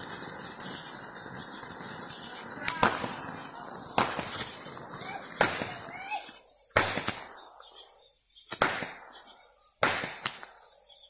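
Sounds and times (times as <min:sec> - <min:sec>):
firework bangs: 0:00.0 - 0:11.0.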